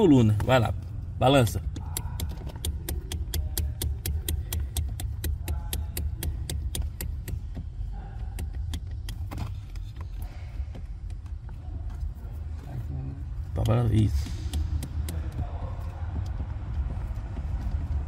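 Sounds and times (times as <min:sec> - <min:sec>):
metallic clicking knocks: 0:01.6 - 0:09.4.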